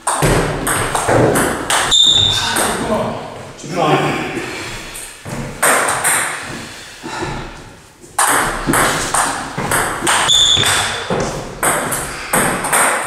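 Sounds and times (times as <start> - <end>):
table tennis ball hits: 0.0 - 2.8, 5.3 - 6.6, 8.2 - 13.0.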